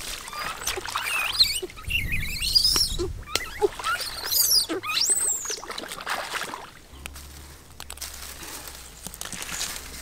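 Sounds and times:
water splashing: 0:00.0 - 0:06.9
high squeaky animal calls: 0:00.2 - 0:05.7.

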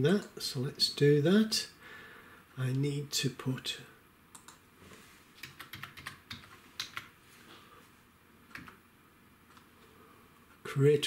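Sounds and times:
faint keyboard typing: 0:04.3 - 0:04.6, 0:05.4 - 0:07.2, 0:08.5 - 0:08.8, 0:09.4 - 0:09.8.

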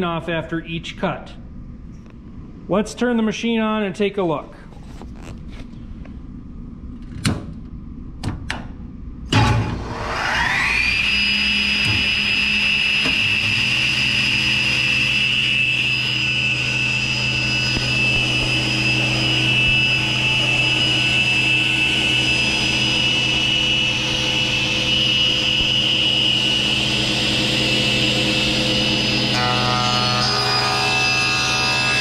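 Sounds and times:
deep motor hum: 0:08.8 - 0:30.2
saw blade high whine: 0:09.3 - 0:32.0.

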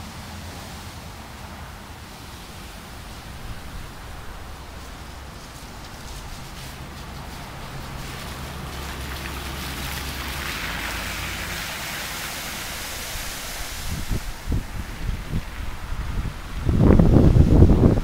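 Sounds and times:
low engine hum: 0:00.0 - 0:18.0
tyres swishing through water: 0:00.0 - 0:18.0
wind buffeting microphone: 0:02.6 - 0:11.5, 0:12.6 - 0:18.0.

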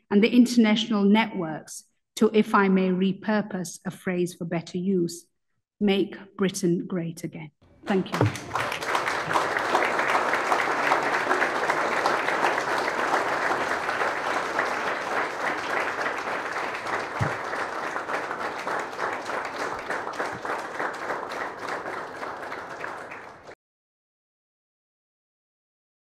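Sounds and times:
audience applauding: 0:07.8 - 0:23.6.

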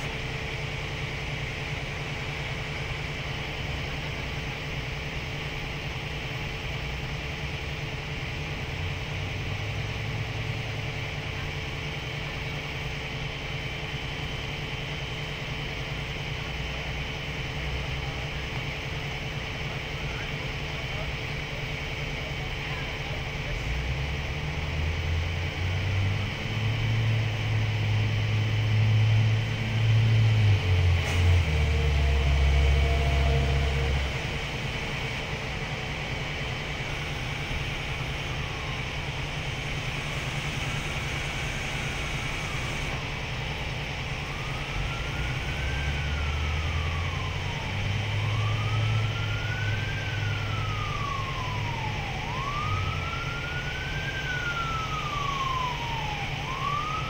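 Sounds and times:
truck engine running: 0:00.0 - 0:57.0
siren wailing: 0:24.8 - 0:57.0.

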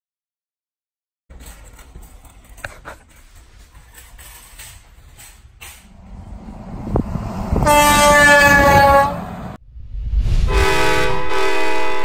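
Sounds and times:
air horn chord blast: 0:07.5 - 0:09.4, 0:10.5 - 0:12.0
lower train horn chord: 0:07.5 - 0:09.5, 0:10.5 - 0:12.0
low rumble: 0:09.2 - 0:12.0.

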